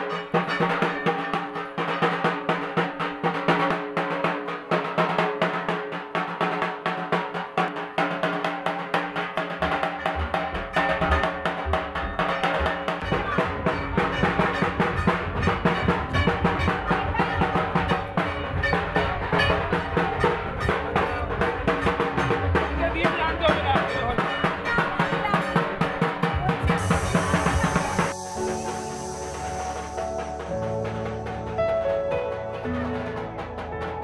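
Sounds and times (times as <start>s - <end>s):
fast drumming music: 0.0s - 34.0s
deep bass beat: 10.1s - 34.0s.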